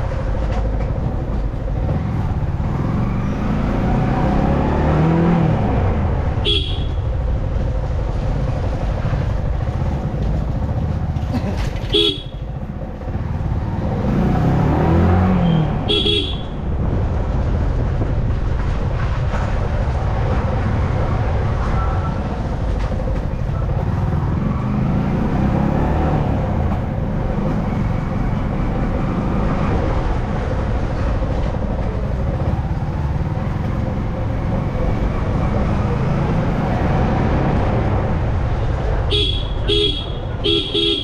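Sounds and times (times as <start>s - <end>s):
motorcycle engine running: 5.2s - 29.2s
horn beep: 39.1s - 41.0s.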